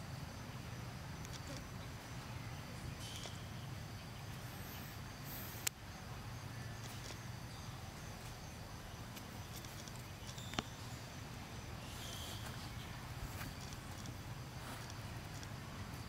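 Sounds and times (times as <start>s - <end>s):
faint high chirp: 2.3s - 5.7s, 9.4s - 14.1s.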